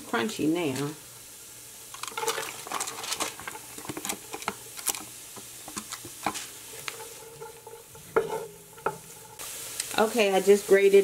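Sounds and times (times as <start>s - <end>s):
vegetables sizzling in butter: 0.0s - 11.0s
wooden spoon scraping a pot: 2.0s - 9.5s.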